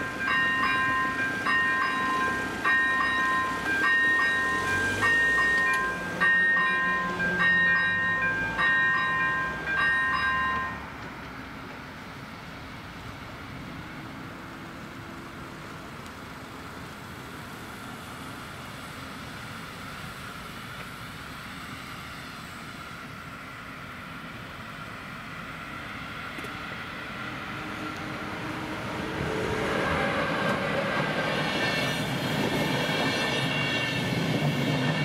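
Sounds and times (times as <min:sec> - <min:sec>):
level crossing bell dinging: 0:00.0 - 0:10.8
background traffic hum: 0:00.0 - 0:35.0.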